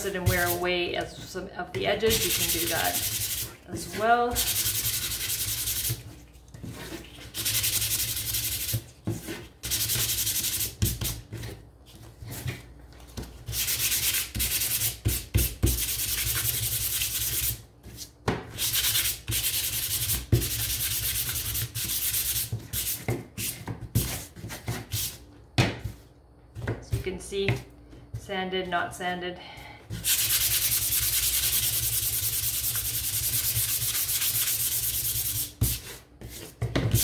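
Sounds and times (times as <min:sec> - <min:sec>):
sandpaper rubbing wood: 0:02.1 - 0:06.0, 0:07.3 - 0:08.8, 0:09.4 - 0:11.2, 0:13.5 - 0:17.6, 0:18.6 - 0:23.5, 0:30.0 - 0:36.0.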